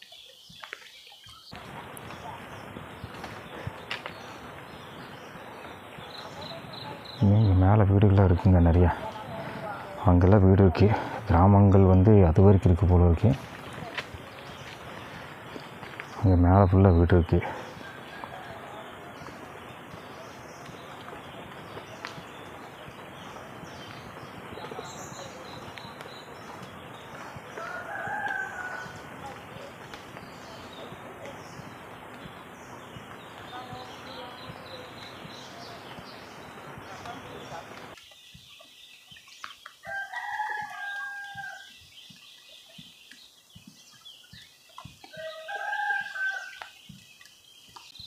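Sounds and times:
rooster crowing: 17.8s - 19.3s, 27.6s - 29.0s, 39.8s - 41.7s, 45.1s - 46.7s.

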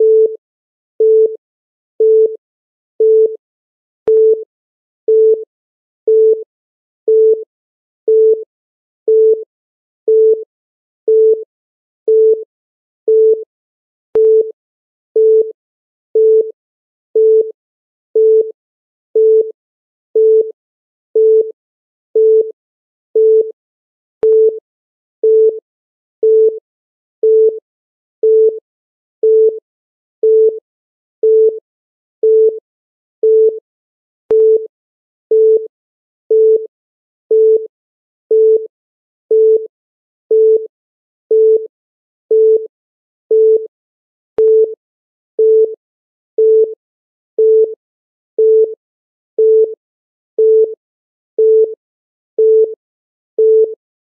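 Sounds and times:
timer beeps: 4.1s - 4.4s, 6.1s - 6.4s, 8.1s - 8.4s, 14.2s - 14.5s, 34.3s - 34.7s, 44.4s - 44.8s.

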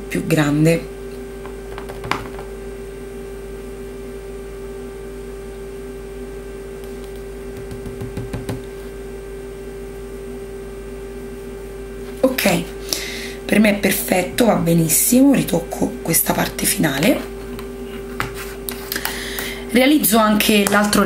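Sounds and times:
fingertips tapping wooden table: 7.6s - 8.7s.

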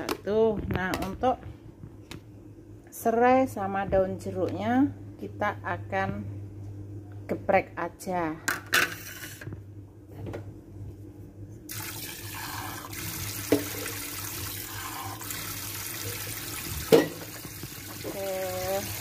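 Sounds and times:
water running from a tap: 11.7s - 19.0s.

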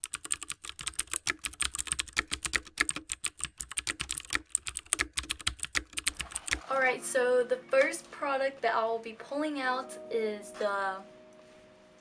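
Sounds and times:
keyboard typing clicks: 0.0s - 6.7s.

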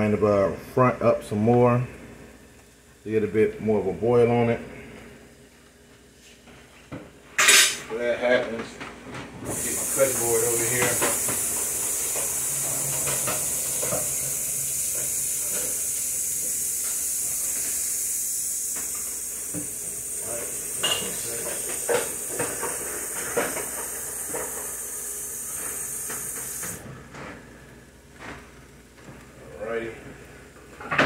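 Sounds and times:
meat sizzling in a hot pan: 9.5s - 26.8s.

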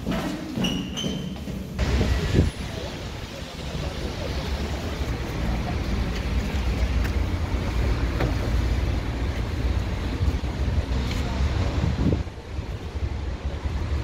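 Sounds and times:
wind buffeting microphone: 11.5s - 12.8s.

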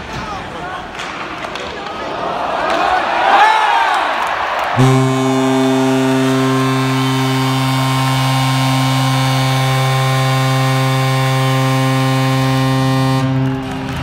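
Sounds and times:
low goal horn: 4.8s - 14.0s.

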